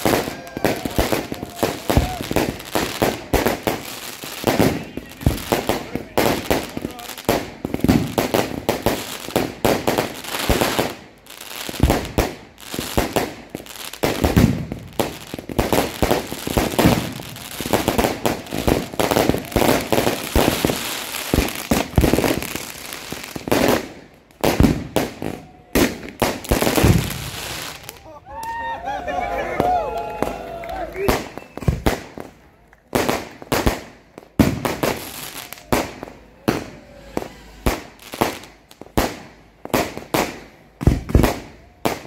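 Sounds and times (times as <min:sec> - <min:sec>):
fireworks crackling: 0:00.0 - 0:28.7, 0:29.4 - 0:42.0.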